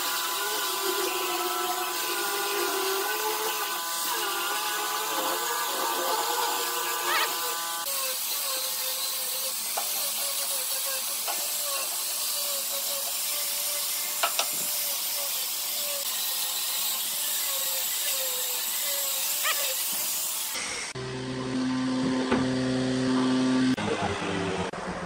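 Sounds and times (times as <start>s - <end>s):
angle grinder sanding wood: 0.0s - 21.0s.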